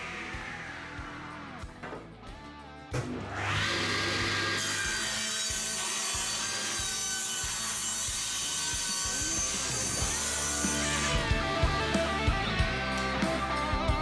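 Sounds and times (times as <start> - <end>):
saw blade cutting wood: 3.1 - 11.4
table saw motor running: 3.1 - 12.0.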